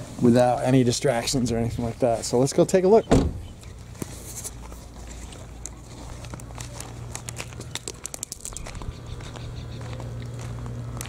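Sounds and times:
footsteps on gravel: 3.6s - 11.0s.

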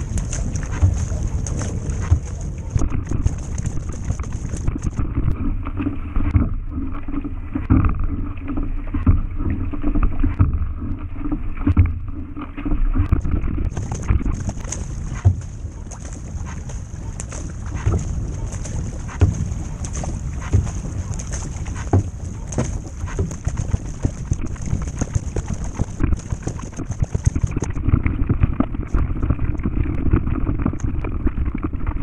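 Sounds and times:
wind buffeting microphone: 0.0s - 5.6s, 13.0s - 32.0s
paddle splashing in water: 0.0s - 32.0s.

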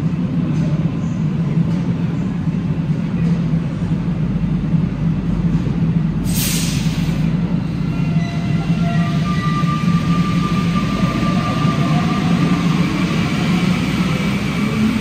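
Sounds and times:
train low hum: 0.0s - 15.0s
compressed air hiss: 6.2s - 7.3s.

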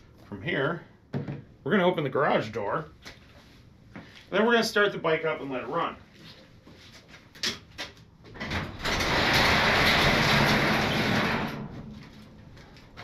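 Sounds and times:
garage door clicks: 8.3s - 11.9s
garage door rolling open: 8.3s - 12.3s.

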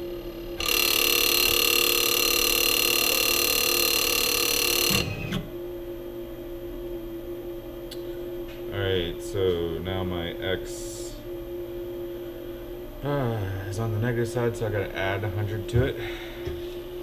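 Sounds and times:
spindle humming: 0.0s - 17.0s
stepper motors whining: 0.6s - 5.6s.

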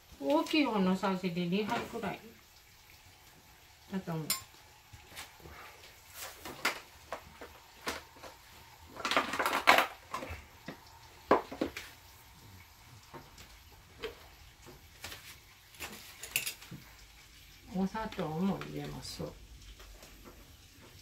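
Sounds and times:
plastic containers clattering: 6.2s - 10.4s.

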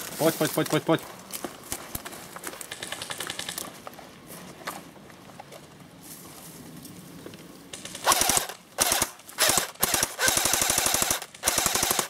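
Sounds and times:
airsoft rifle full-auto bursts: 7.8s - 12.0s.

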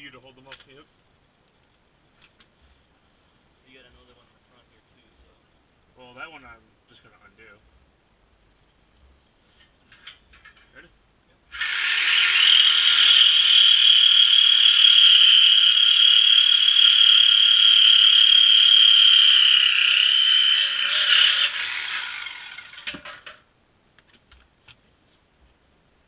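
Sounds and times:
cut-off grinder cutting metal: 11.6s - 23.4s.

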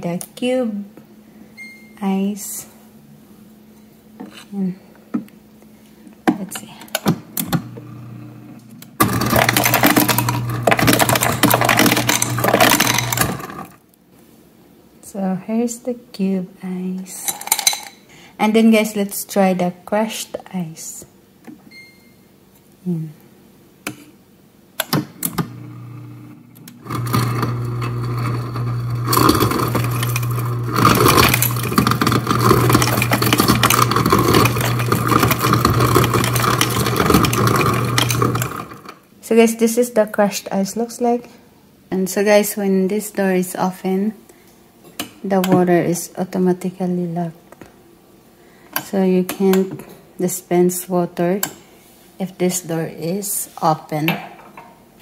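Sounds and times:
low motor hum: 7.5s - 13.7s, 25.4s - 38.8s
ice cubes clattering into glass: 9.1s - 13.7s, 29.1s - 38.8s.

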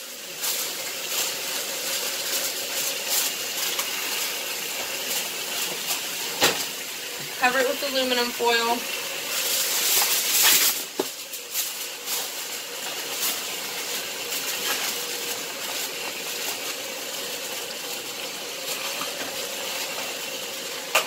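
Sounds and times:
aluminum foil tearing: 0.3s - 6.8s, 9.2s - 17.7s
foil crinkling: 0.3s - 6.9s, 7.6s - 20.5s.

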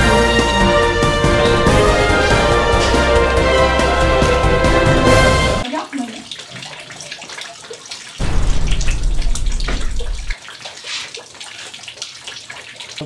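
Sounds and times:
water dripping into buckets: 0.0s - 13.0s
low rumble: 8.2s - 10.3s.

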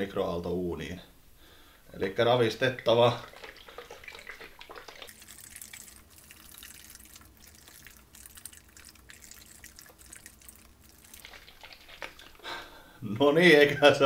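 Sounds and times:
liquid sloshing in carton: 2.8s - 12.4s.

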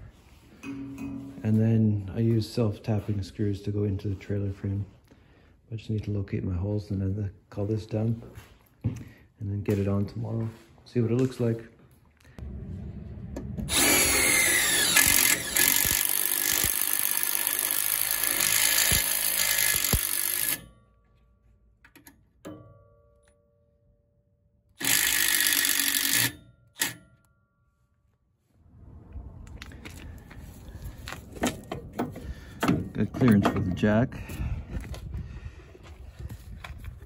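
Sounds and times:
cordless drill driving screws: 13.7s - 20.6s, 24.8s - 27.0s.

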